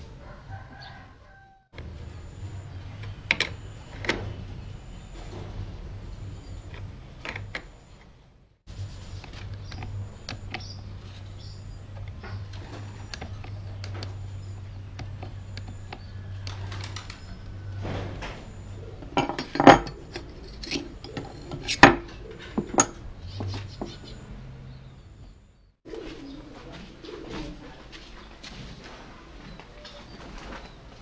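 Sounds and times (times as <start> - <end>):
handling of wood: 17.6 - 24.2
metal tools knocking and clinking: 19.0 - 24.0.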